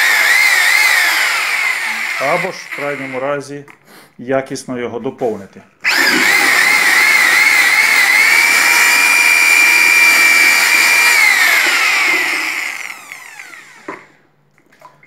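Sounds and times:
electric drill motor whine: 0.0 - 3.2, 5.8 - 14.2.

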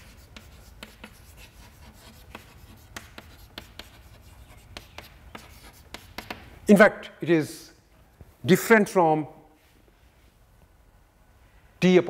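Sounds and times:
chalk tapping and scratching: 0.0 - 6.6.

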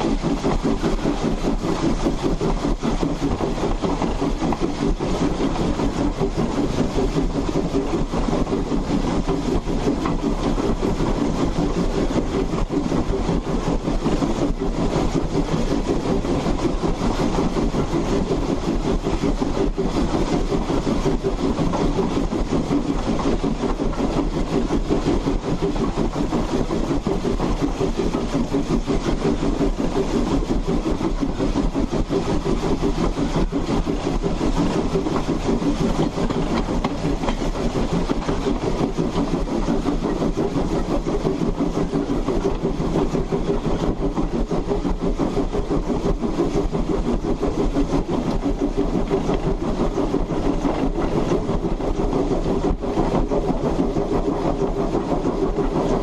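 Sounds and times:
steam locomotive wheels clattering: 0.0 - 56.0.

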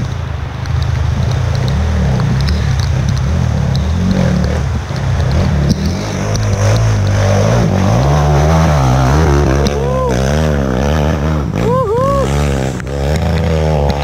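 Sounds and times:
motorcycle engine at low revs: 0.0 - 14.0.

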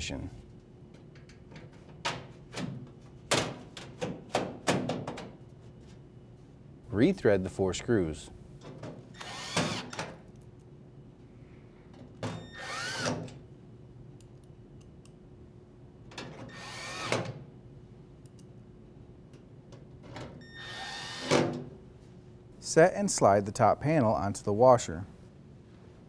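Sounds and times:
cordless drill driving screws: 9.2 - 10.0, 12.5 - 13.2, 16.5 - 17.2, 20.6 - 21.3.

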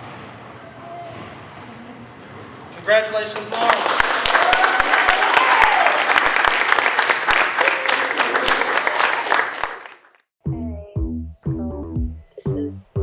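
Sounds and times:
crowd clapping: 3.1 - 10.3
person cheering: 4.3 - 6.1.

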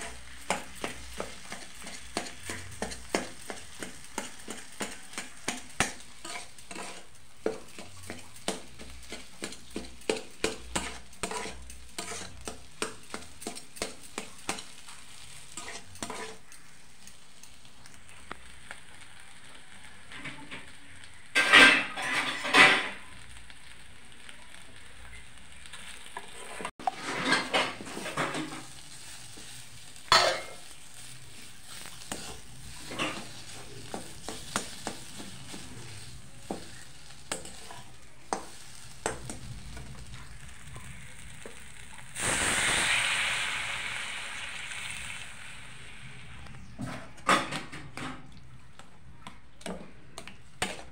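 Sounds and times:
metal spatula scraping a pan: 0.0 - 16.5, 21.4 - 23.0, 26.3 - 40.6, 49.6 - 50.9
faint sizzle: 0.0 - 50.9.

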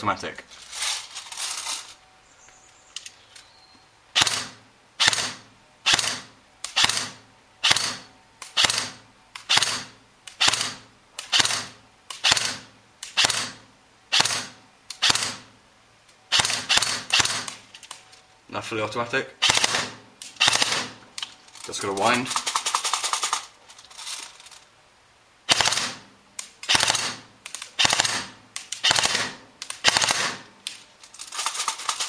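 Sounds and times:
airsoft rifle shots snapping: 4.2 - 15.5, 16.3 - 17.6, 19.4 - 21.0, 25.5 - 30.8.

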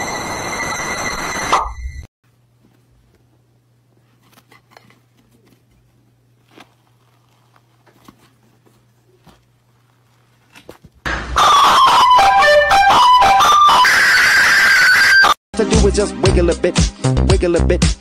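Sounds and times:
soft tearing of bread: 4.1 - 10.9
loud music: 11.1 - 18.0.

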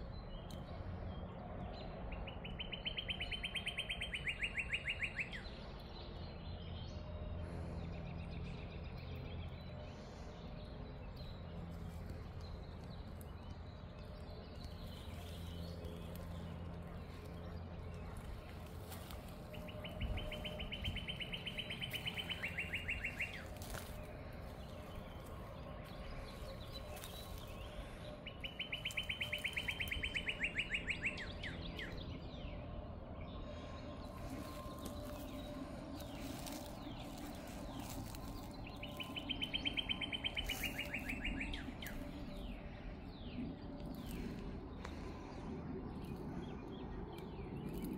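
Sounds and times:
faint bird chirps: 2.3 - 32.0, 33.4 - 45.4
songbird trilling: 2.5 - 5.4, 18.8 - 24.0, 26.4 - 32.0, 36.0 - 42.6.

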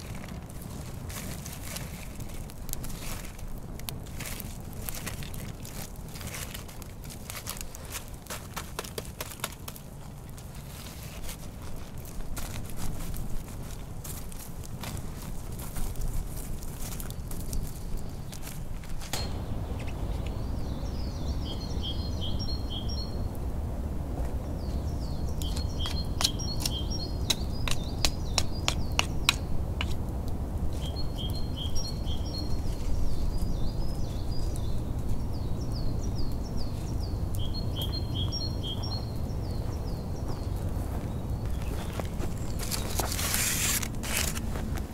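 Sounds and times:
low background rumble: 11.5 - 44.9
songbird twittering: 19.2 - 23.2, 24.6 - 29.5, 30.8 - 43.5.

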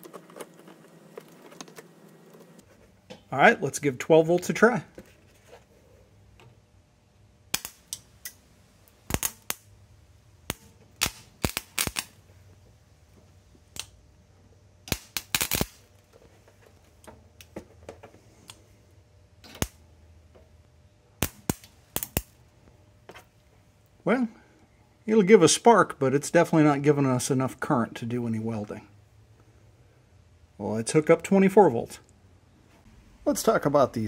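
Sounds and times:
welding rod sparking snaps: 7.5 - 9.7, 10.5 - 12.2, 13.7 - 14.0, 14.8 - 15.9, 19.4 - 19.8, 21.2 - 22.4.

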